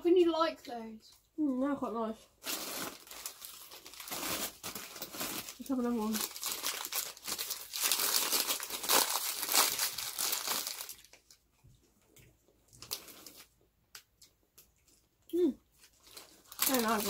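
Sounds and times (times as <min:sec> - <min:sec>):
plastic wrapper crinkling: 0:02.4 - 0:11.5, 0:12.7 - 0:15.0, 0:15.7 - 0:17.0.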